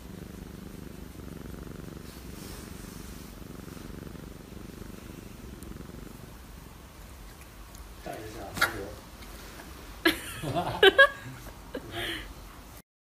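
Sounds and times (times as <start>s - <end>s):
cat purring: 0.0s - 10.0s.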